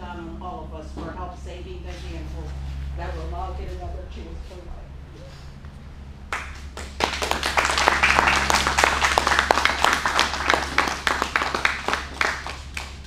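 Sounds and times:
small group applauding: 6.3s - 13.0s.

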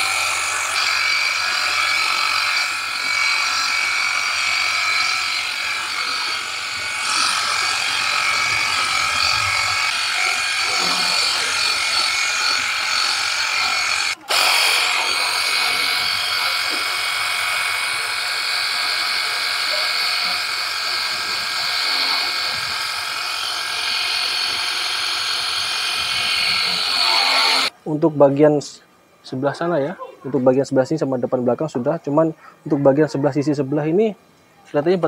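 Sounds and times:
pressure washer motor whine: 0.0s - 27.7s.

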